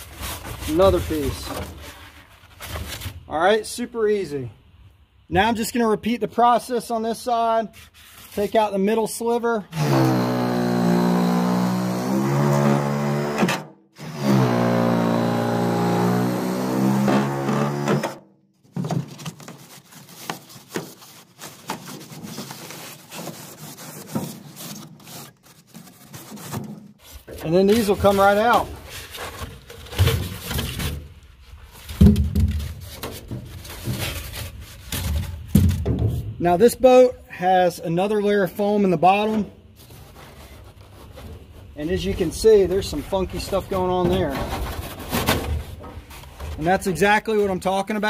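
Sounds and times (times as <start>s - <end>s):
foam blocks rubbing and scraping: 0.0s - 3.3s, 7.7s - 8.7s, 19.0s - 35.6s, 39.1s - 48.0s
reciprocating saw cutting foam: 9.7s - 18.2s.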